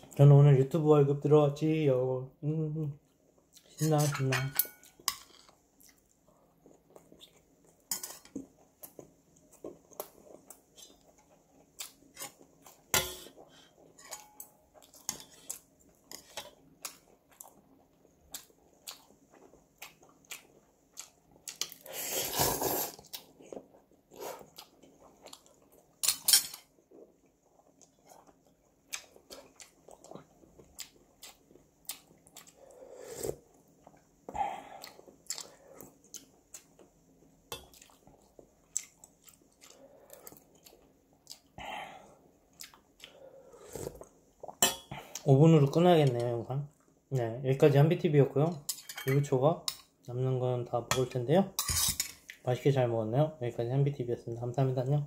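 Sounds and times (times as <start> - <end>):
chewing and mouth sounds: 14.1 - 21.9, 22.9 - 26.0, 26.8 - 36.9, 37.6 - 41.6, 42.5 - 45.3
loud noodle slurp: 21.8 - 23.1, 32.9 - 33.4.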